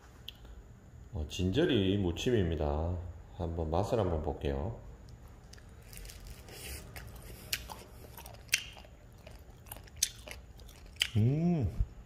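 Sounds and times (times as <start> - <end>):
person chewing: 5.1 - 12.0.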